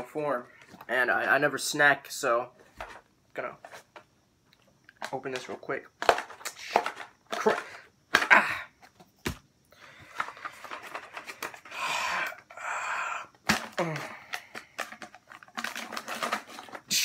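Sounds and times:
foil seal rustling: 14.4 - 17.0.

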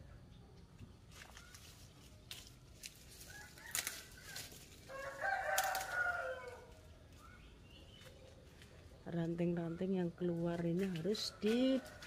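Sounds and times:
rooster crowing: 3.2 - 6.8.

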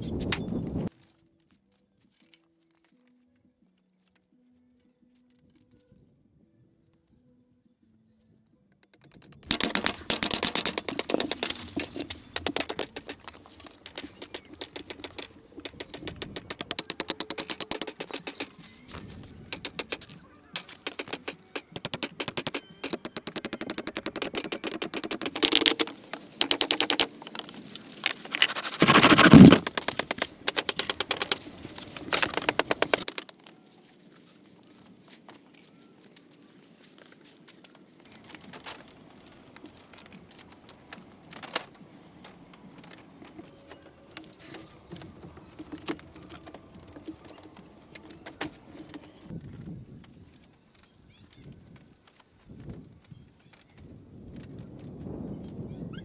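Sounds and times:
hammering and chopping bamboo: 8.8 - 18.7, 19.4 - 33.5.

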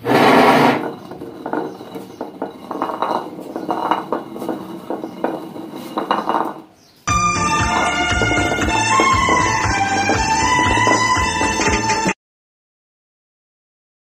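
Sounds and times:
hand mill grinding grain: 0.0 - 12.1.

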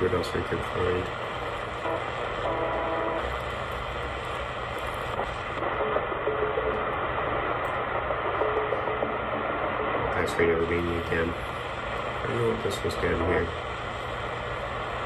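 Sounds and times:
faint radio tones: 0.0 - 15.0
shortwave radio static: 0.0 - 15.0.

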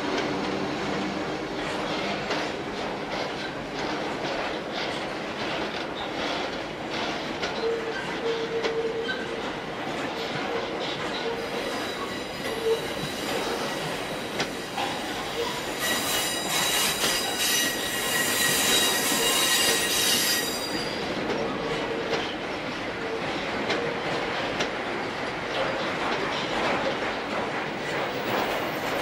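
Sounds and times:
freight train rolling past: 0.0 - 29.0
wheels clacking over rail joints: 0.0 - 29.0
high ringing metallic squeal: 11.4 - 21.0.

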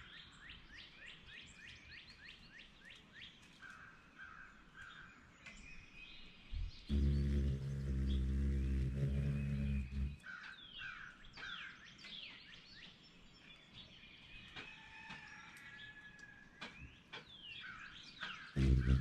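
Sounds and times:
birds chirping: 5.0 - 10.8, 17.3 - 19.0
hummingbird wings humming: 6.9 - 10.2, 18.6 - 19.0.

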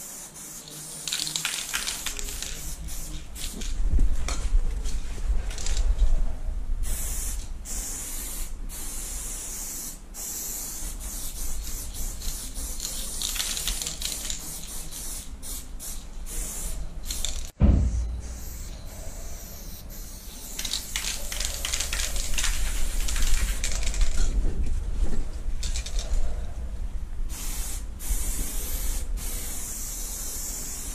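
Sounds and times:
spray paint can hissing: 0.0 - 3.7, 6.8 - 24.2, 27.3 - 30.9.

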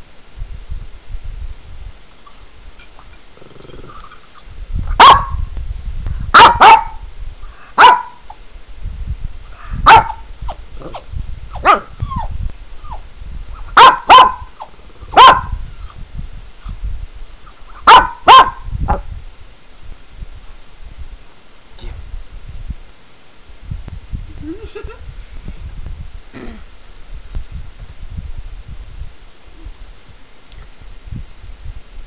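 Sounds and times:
recorded animal whining: 1.8 - 4.5, 9.4 - 17.6
small dog barking: 4.9 - 5.5, 6.3 - 7.1, 7.8 - 8.3, 9.8 - 12.3, 13.7 - 15.6, 17.8 - 19.0.

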